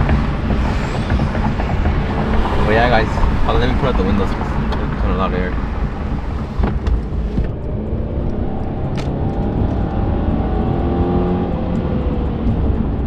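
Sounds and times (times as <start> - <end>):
car engine accelerating: 0.0 - 13.0
road noise: 0.0 - 13.0.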